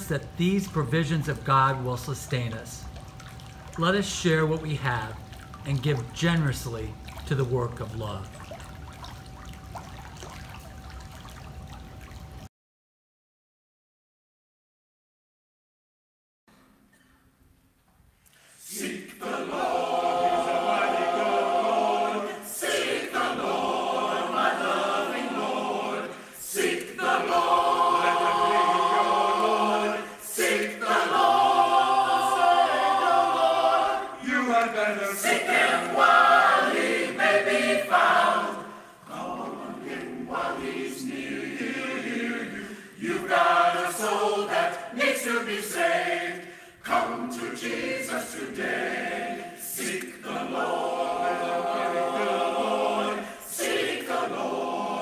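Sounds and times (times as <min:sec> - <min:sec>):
choir singing: 0:18.6 - 0:55.0.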